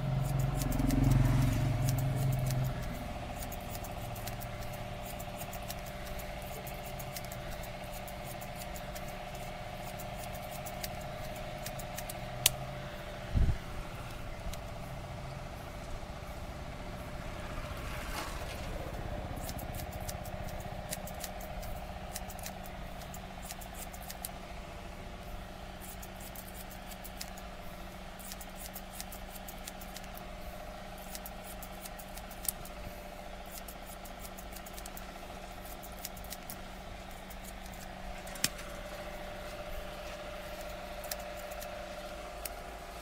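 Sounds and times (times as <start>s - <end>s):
scissors snipping hair: 0.0s - 12.6s, 19.2s - 24.4s, 25.8s - 27.5s, 28.1s - 30.3s, 31.0s - 32.8s, 33.4s - 38.7s, 39.4s - 42.6s
steady electrical hum: 0.0s - 43.0s.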